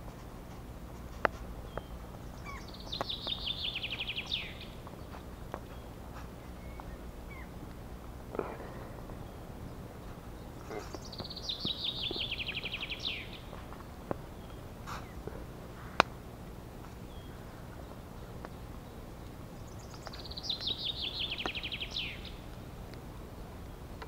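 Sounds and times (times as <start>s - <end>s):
faint ticks: 0.0s - 9.3s
sharp crack: 1.0s - 18.6s
songbird singing falling notes: 1.0s - 24.0s.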